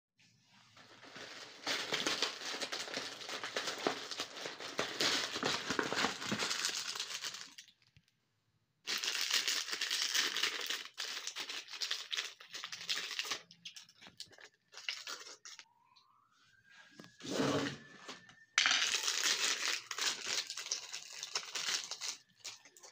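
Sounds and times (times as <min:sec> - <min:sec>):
plastic wrapper crinkling: 0:00.7 - 0:08.1, 0:08.9 - 0:15.6, 0:18.6 - 0:22.9.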